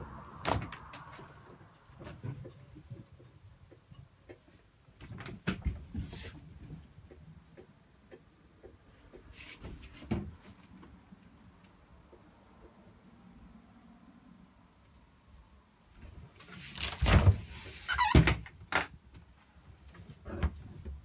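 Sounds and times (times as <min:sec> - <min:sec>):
knocks and thumps in a caravan: 0:00.4 - 0:07.0.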